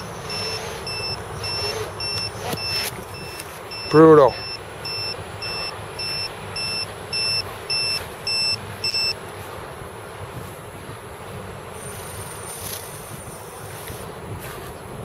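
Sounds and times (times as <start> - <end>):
piezo buzzer beeping: 0.0 - 9.2.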